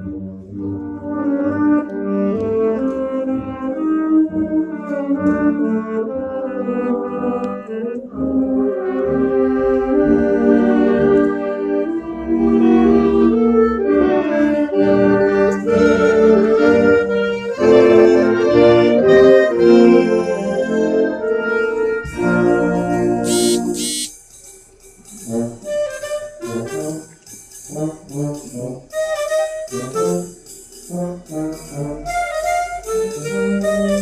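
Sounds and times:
wind band playing chords: 6.0 - 24.1.

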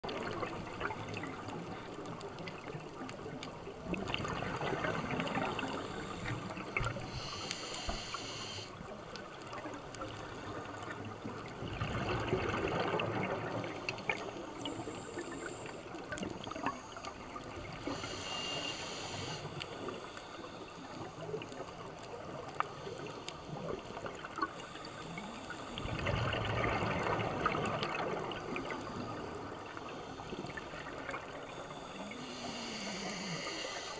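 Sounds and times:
fine crackle of small clicks: 0.0 - 33.9
high hissing inhalations: 5.4 - 8.8, 17.8 - 20.5, 31.9 - 33.9.

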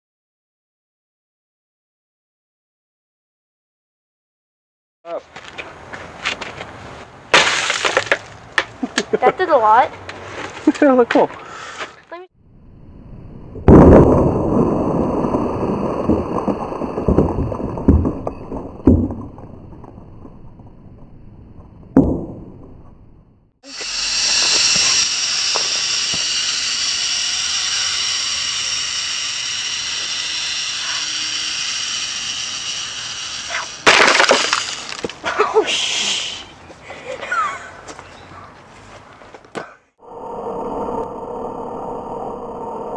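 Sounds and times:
explosive charge bang: 13.6 - 14.8
steady hiss: 23.7 - 33.9.

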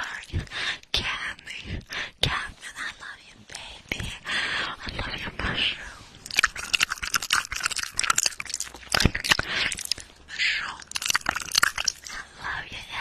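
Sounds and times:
wet lip and tongue clicks: 6.2 - 12.2.

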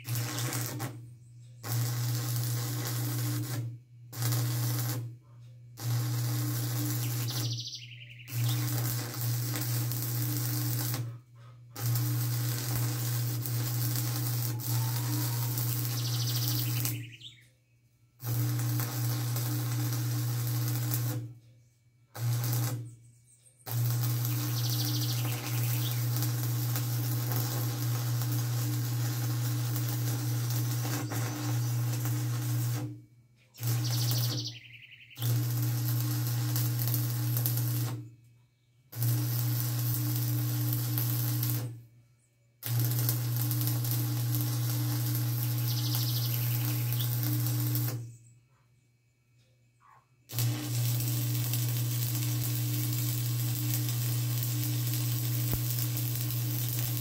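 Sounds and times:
hissing crackling noise: 0.0 - 1.0, 8.3 - 11.1, 11.8 - 17.2, 23.7 - 32.9, 42.6 - 48.0, 50.3 - 57.0
machine humming: 11.8 - 17.2, 18.2 - 21.3, 23.7 - 32.9, 35.2 - 38.0, 39.0 - 41.7, 42.6 - 48.0, 50.3 - 57.0.

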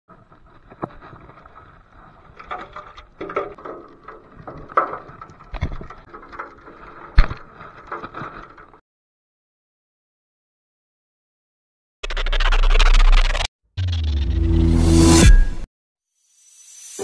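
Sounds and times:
seawater splashing: 0.1 - 8.8.

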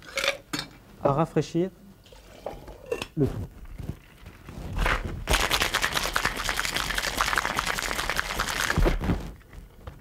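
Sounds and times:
ice rattling in cocktail shaker: 4.9 - 8.8.

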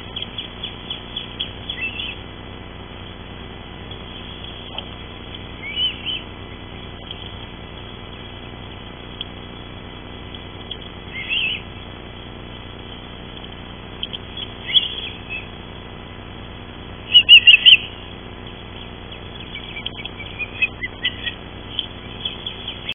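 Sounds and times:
ospreys chirping: 0.0 - 2.4, 4.0 - 8.8, 10.4 - 11.9, 13.9 - 15.9, 17.0 - 22.9.

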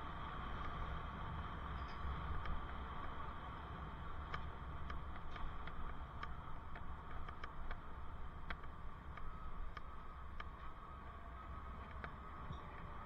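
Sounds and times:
low rumble of riding: 0.0 - 13.0
bicycle ticking and clicking: 0.6 - 11.0.

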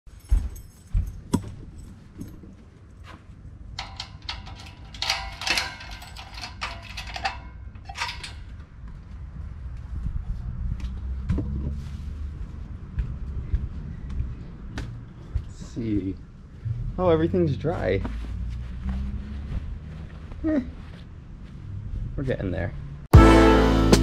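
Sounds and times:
metal gate bars rattling: 3.7 - 8.6
lock clicking: 3.8 - 8.5.

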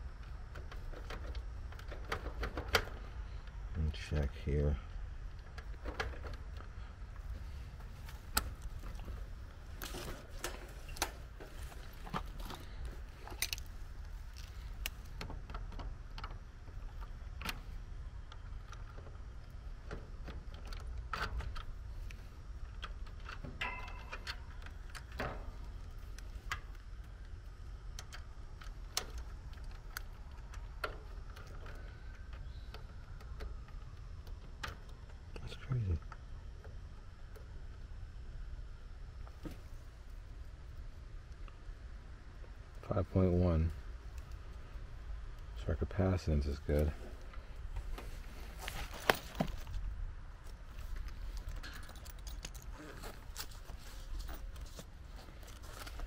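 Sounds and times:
steady low rumble: 0.0 - 56.0
clicks and rattles of test leads: 18.2 - 36.3, 50.4 - 56.0.

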